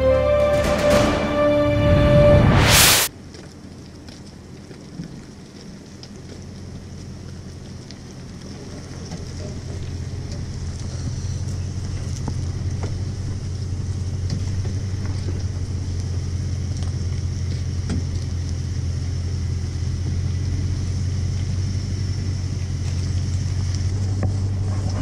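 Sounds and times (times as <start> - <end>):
vehicle engine idling: 5.8 - 25.0.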